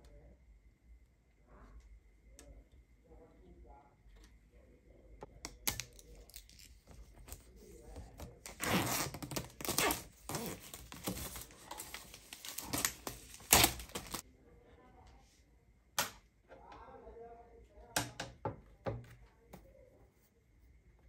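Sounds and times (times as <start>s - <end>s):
plastic film being peeled off: 8.4s - 14.2s.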